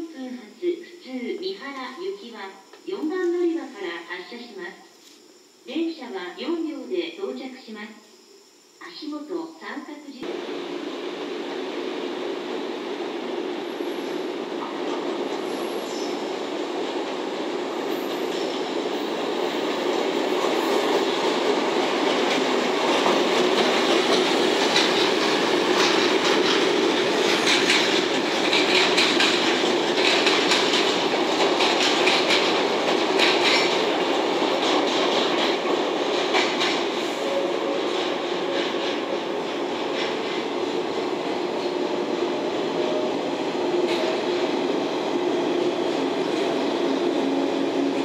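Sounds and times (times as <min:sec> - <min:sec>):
train rail rumble: 0:10.2 - 0:48.0
wheels clicking over rail joints: 0:22.1 - 0:36.9.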